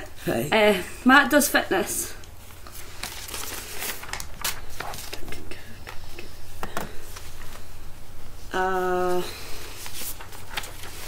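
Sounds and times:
paper card rustling: 2.2 - 7.7, 9.6 - 11.0.

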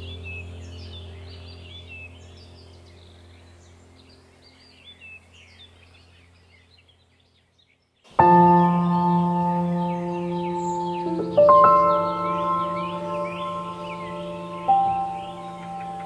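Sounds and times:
low musical drone: 0.0 - 6.4, 8.2 - 16.0
birds chirping: 0.0 - 16.0
bell-like chord ringing: 8.2 - 16.0.

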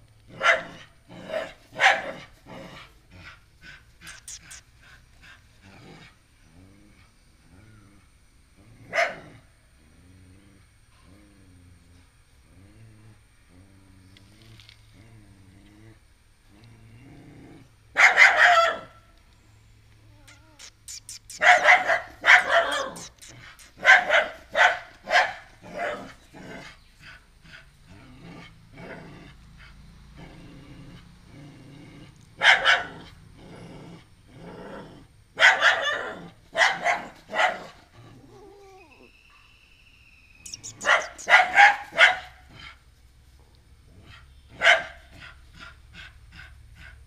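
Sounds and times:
small dog barking: 0.3 - 2.3, 4.0 - 4.6, 8.9 - 9.4, 17.9 - 19.0, 20.2 - 26.2, 32.4 - 33.1, 35.4 - 37.8, 40.5 - 42.5, 44.5 - 45.3.

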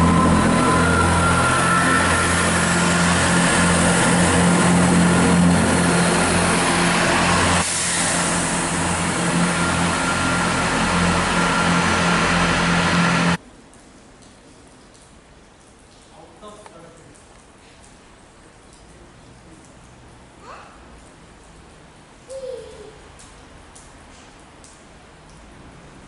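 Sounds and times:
train diesel engines running: 0.0 - 13.4.

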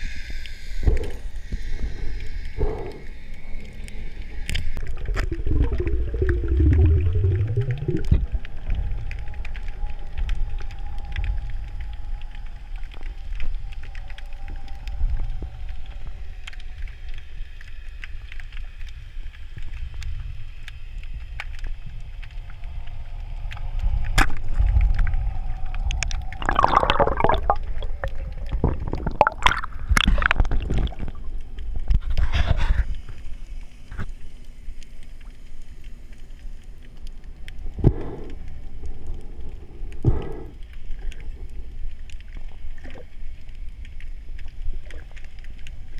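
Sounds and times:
low underwater rumble: 0.7 - 17.1, 19.7 - 45.9
gurgling bursts of bubbles: 4.8 - 8.8, 25.8 - 31.4.

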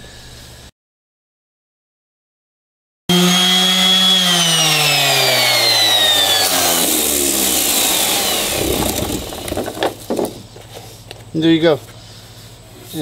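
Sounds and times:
orbital sander running: 3.1 - 10.1.

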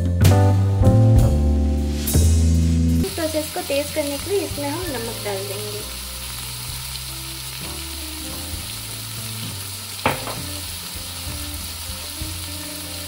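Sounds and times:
onions sizzling in oil: 1.9 - 13.0
sharp knock: 10.0 - 10.5.

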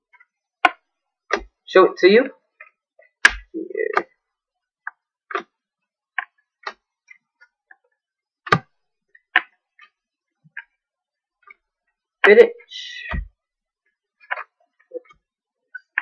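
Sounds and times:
trading cards clicking and tapping: 8.4 - 10.7.

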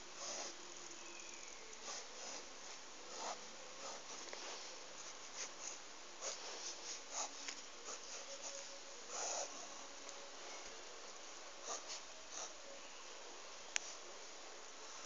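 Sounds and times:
steady hiss: 0.0 - 15.0
marker scraping on paper: 1.8 - 9.6.

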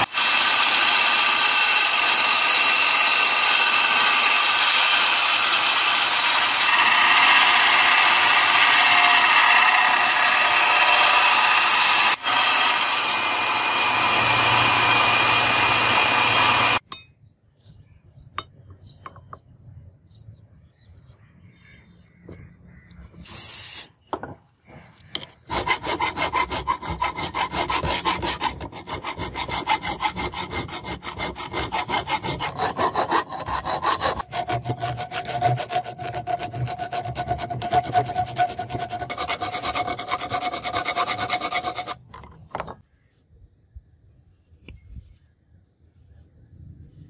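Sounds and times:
file rasping on steel: 0.0 - 16.8, 25.5 - 42.1.

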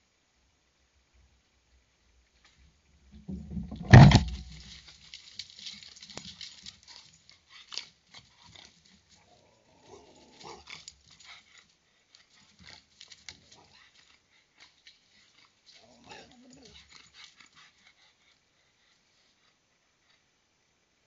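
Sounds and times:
rustling and clicking: 2.4 - 17.6.

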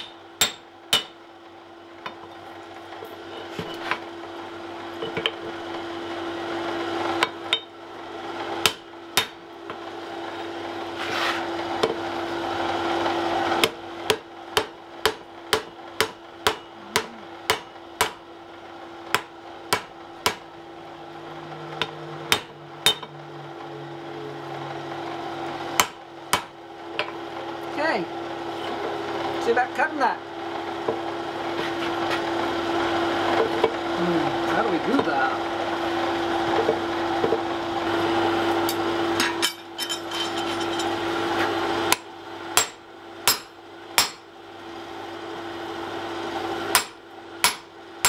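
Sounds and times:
steady hum: 13.6 - 30.4.

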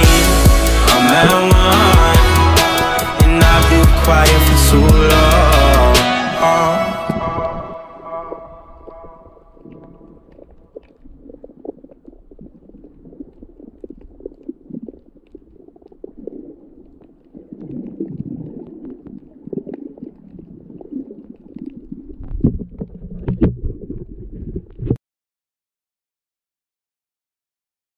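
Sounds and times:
underwater sloshing and gurgling: 6.9 - 25.0.

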